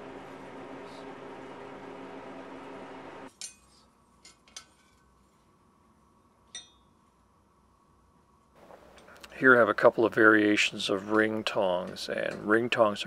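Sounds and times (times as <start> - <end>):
steady low hum: 0.0 - 4.4
metal tongs clinking on anvil: 3.3 - 5.0, 6.5 - 6.9.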